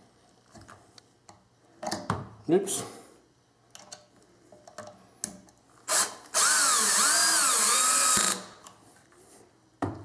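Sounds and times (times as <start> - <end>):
drill clicks: 5.9 - 8.5
drill motor driving screw: 5.9 - 8.5.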